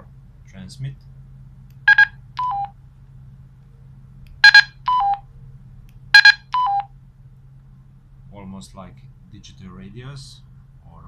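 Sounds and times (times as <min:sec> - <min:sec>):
dtmf tone bursts: 0:01.9 - 0:02.7, 0:04.4 - 0:05.2, 0:06.2 - 0:06.9.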